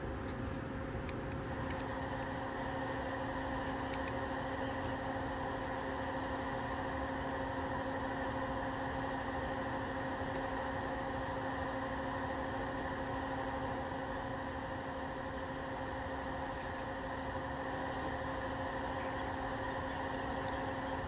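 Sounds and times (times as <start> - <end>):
machine hum with hiss: 0.0 - 21.0
faint ticks: 3.6 - 4.2.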